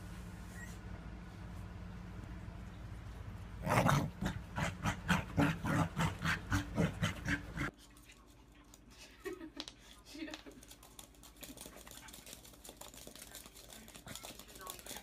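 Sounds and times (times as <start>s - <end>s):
dog making throaty sounds: 3.6s - 7.7s.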